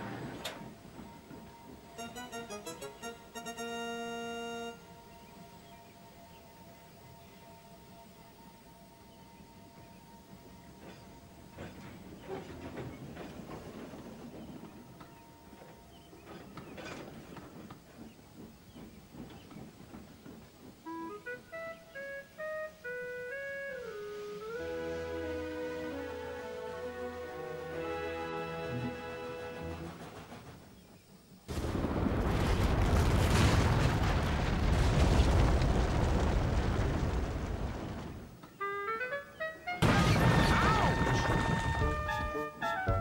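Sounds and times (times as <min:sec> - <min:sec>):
flute-like tune: 0:01.7 - 0:06.5, 0:20.9 - 0:29.8, 0:38.6 - 0:39.8, 0:40.5 - 0:43.0
rushing rumble of snow: 0:23.7 - 0:38.4.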